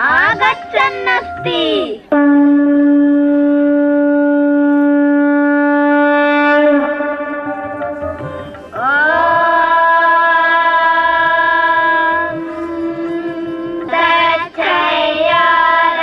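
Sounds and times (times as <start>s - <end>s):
conch shell blast: 0.5s - 8.7s.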